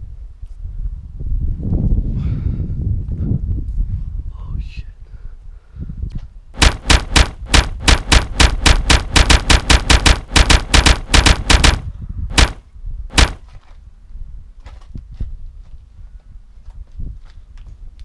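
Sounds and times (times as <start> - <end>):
automatic gunfire: 6.6 - 13.4.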